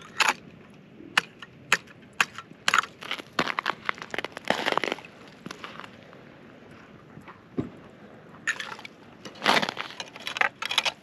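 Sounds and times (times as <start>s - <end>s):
snow and ice crunching: 2.7s - 6.2s, 8.5s - 11.0s.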